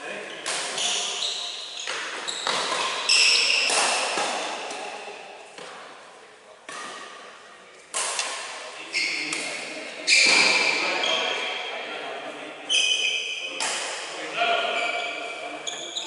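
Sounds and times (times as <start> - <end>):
rackets striking shuttlecock: 0.4 - 1.1, 1.8 - 4.9, 6.7 - 7.2, 7.9 - 8.7, 13.6 - 14.0.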